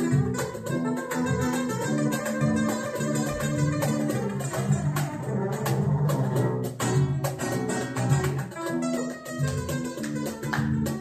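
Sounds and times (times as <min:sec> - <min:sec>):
jazz-flamenco guitar music: 0:00.0 - 0:11.0.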